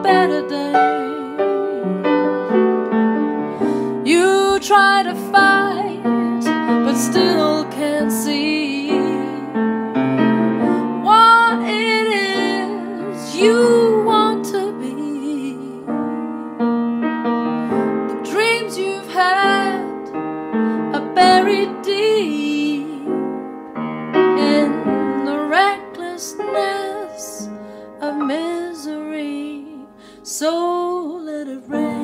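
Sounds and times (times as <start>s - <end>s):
woman singing solo: 0.0s - 2.1s, 10.8s - 16.4s
upright piano: 0.0s - 32.0s.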